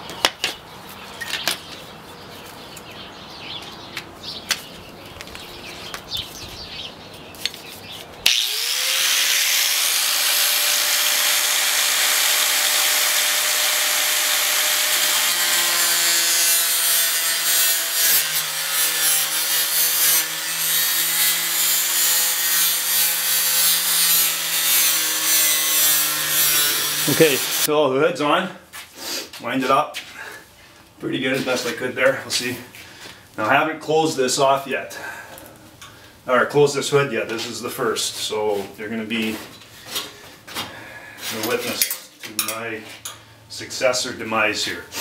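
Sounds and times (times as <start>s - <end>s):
low drone of tool cutting: 8.2s - 27.7s
power cutting tool whirring: 8.2s - 27.7s.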